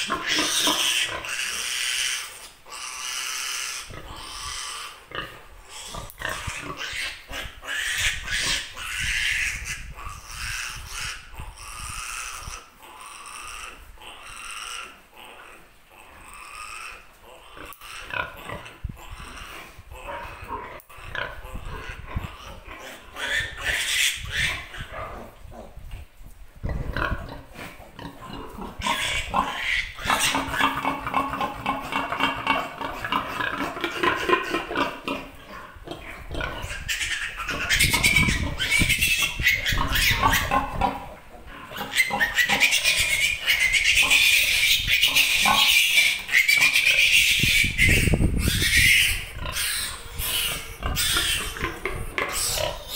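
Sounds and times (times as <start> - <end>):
piglet squealing: 0.0 - 5.0, 5.7 - 15.0, 21.0 - 24.9, 28.8 - 31.2, 36.5 - 41.1, 41.7 - 52.9.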